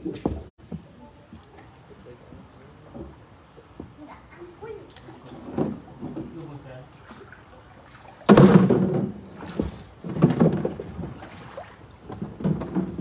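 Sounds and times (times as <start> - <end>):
water splashing against boat: 4.6 - 13.0.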